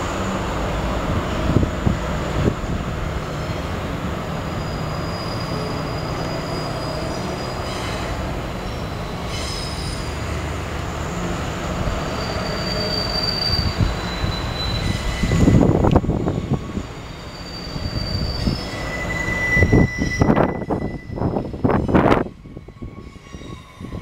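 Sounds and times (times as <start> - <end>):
train wheels rumbling on rail: 0.0 - 24.0
high-pitched wheel squeal: 4.4 - 10.3, 12.0 - 16.3, 17.0 - 24.0.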